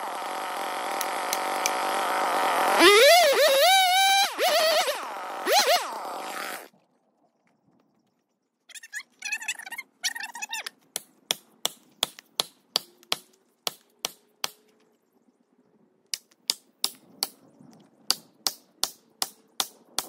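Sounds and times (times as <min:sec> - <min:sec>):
short high whines: 0:00.0 - 0:06.7.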